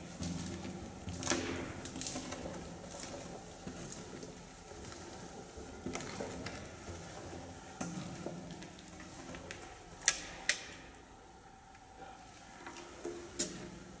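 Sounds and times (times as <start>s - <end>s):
footsteps crunching over rubble: 0.0s - 10.0s.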